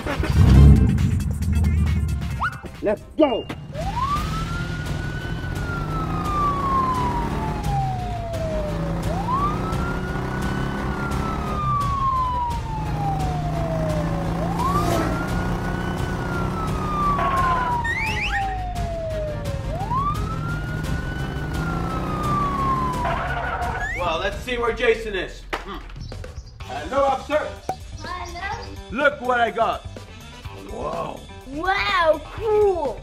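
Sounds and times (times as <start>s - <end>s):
police siren wailing: 3.7s - 24.2s.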